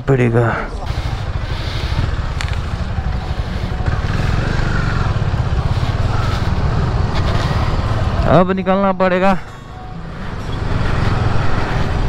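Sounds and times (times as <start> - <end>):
motorcycle engine idling: 0.2 - 8.4.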